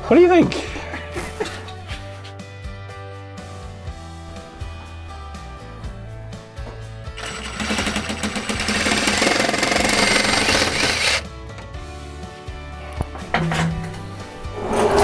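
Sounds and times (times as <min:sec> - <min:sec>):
background music: 0:00.0 - 0:15.0
power saw cutting pipe: 0:07.2 - 0:11.2.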